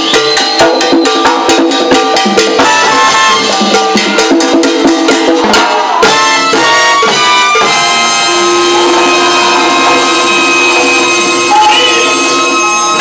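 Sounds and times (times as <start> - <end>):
salsa band playing: 0.0 - 13.0.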